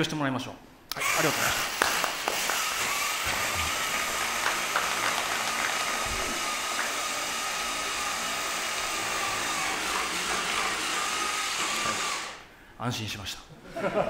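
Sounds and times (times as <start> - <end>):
electric motors whirring: 0.9 - 12.5.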